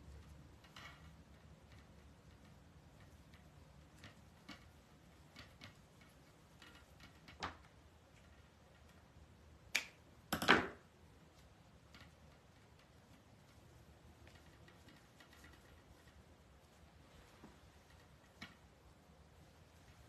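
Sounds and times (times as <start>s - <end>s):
scissors clattering on counter: 10.3s - 10.8s
ribbon rustling and clicking: 11.2s - 20.0s.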